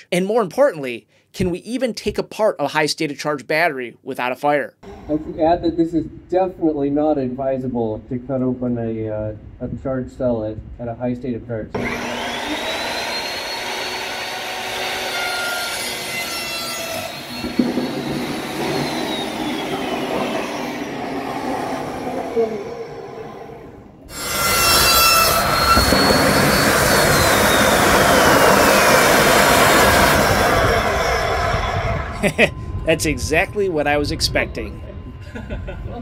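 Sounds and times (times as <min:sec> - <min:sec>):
chop saw cutting metal: 0:11.8 - 0:21.1, 0:24.1 - 0:31.4
battery venting rushing noise: 0:17.1 - 0:21.4, 0:24.1 - 0:31.7.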